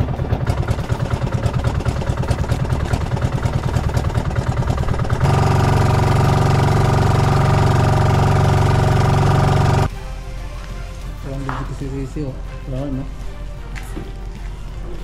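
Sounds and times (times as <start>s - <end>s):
engine running: 0.0s - 9.9s.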